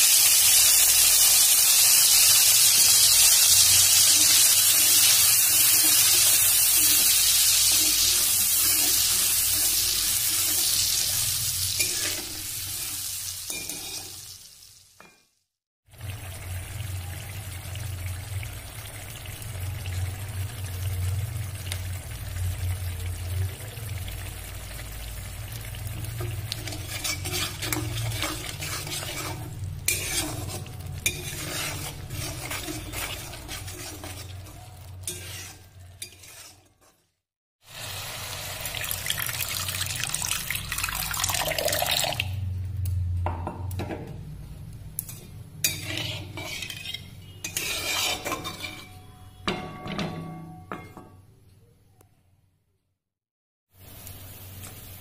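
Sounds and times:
paste sizzling in hot oil: 0.0s - 15.0s, 24.2s - 42.2s, 45.0s - 49.4s, 53.7s - 55.0s
spatula scraping a wok: 0.5s - 14.4s, 26.1s - 37.2s, 45.0s - 49.6s.

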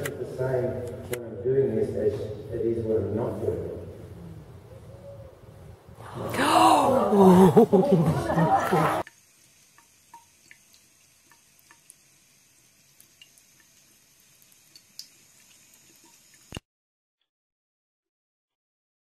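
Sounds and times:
faucet water trickling into sink: 9.0s - 16.6s
water drips and splashes: 9.0s - 16.6s.

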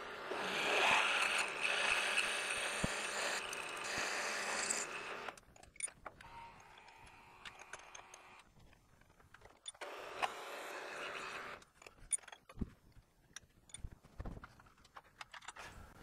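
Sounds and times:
drill cutting metal with whine: 0.0s - 5.4s, 9.8s - 11.6s.

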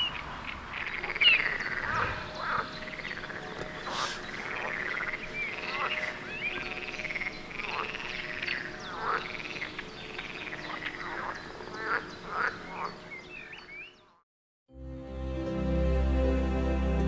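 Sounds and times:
frogs croaking in chorus: 0.0s - 14.2s.

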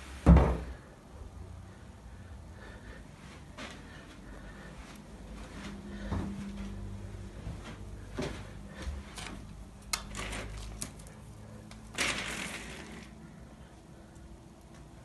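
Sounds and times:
window blind slats rattling: 9.9s - 13.4s.

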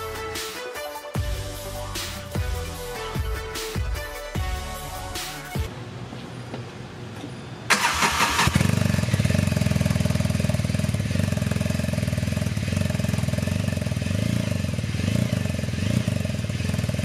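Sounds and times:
engine cranking: 7.7s - 9.2s
engine idling: 7.7s - 17.0s.

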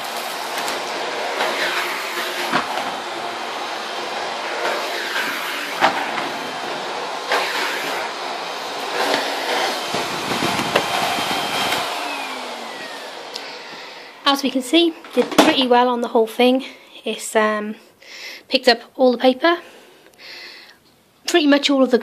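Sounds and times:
vacuum cleaner running: 0.0s - 15.5s.

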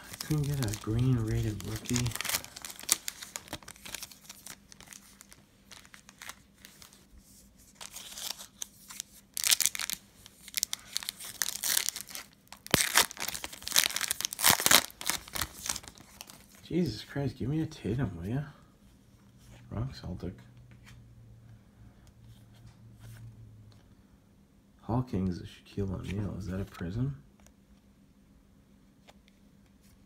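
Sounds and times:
foil pack tearing open: 0.0s - 6.4s, 9.4s - 16.4s
foil pack crinkling: 0.0s - 7.1s, 7.7s - 16.6s.

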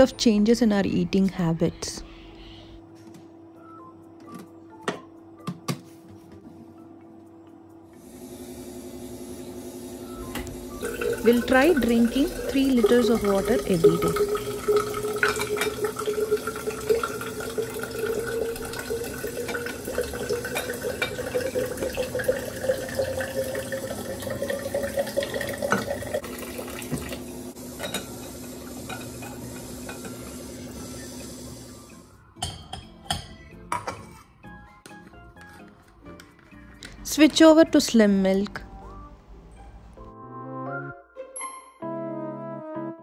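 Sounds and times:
water pouring into glass bottle: 10.8s - 27.2s.

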